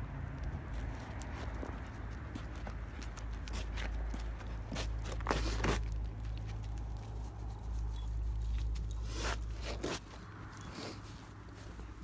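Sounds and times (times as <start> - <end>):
scuffs: 0.6 - 12.0
dog chain collar jingling: 6.6 - 11.1.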